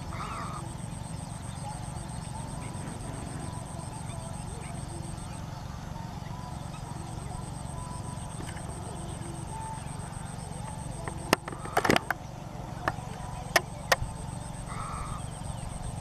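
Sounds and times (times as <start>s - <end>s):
low outdoor rumble: 0.0s - 16.0s
sharp clicks: 10.6s - 12.2s.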